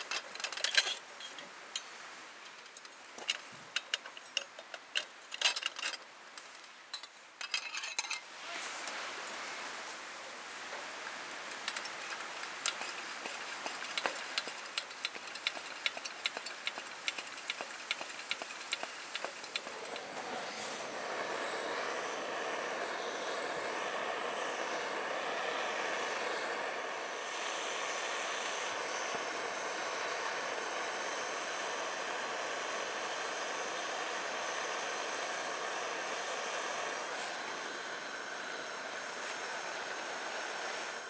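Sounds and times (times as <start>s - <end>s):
food sizzling in a pan: 19.6s - 41.0s.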